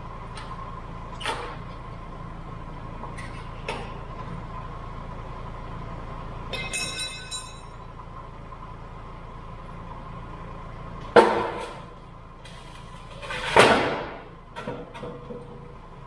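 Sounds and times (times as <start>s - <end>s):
diesel engine idling: 0.0s - 16.0s
metal clank with ringing tail: 6.5s - 7.9s
loud clunk: 11.1s - 11.8s, 13.2s - 15.6s.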